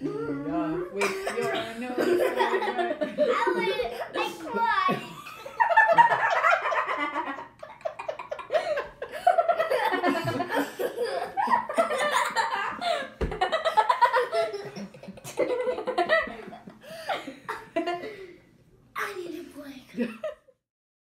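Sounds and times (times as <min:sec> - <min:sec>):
boy laughing hard: 0:02.0 - 0:18.1
thump: 0:13.2 - 0:13.5.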